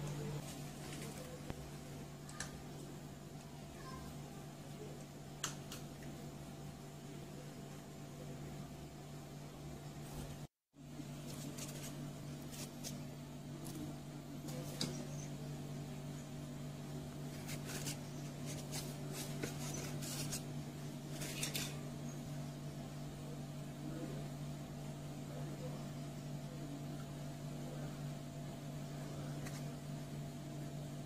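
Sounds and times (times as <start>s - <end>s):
steady machine hum: 0.0s - 31.0s
scratchy styrofoam handling: 11.2s - 13.0s, 17.3s - 20.5s.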